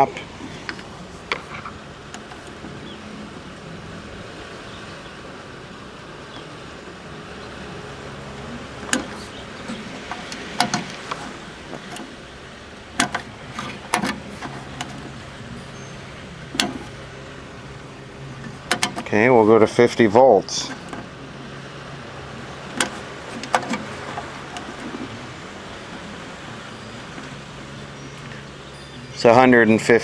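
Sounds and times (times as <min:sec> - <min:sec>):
sharp clicks and knocks: 0:08.8 - 0:12.2, 0:12.9 - 0:15.2, 0:16.5 - 0:17.0, 0:18.4 - 0:19.1, 0:22.7 - 0:25.1.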